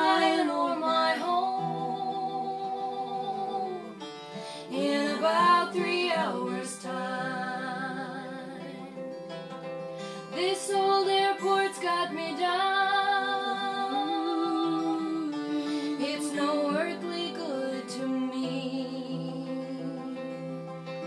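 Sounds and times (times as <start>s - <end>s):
women singing: 0.0s - 9.1s, 10.2s - 20.5s
strummed acoustic guitar: 0.0s - 21.0s.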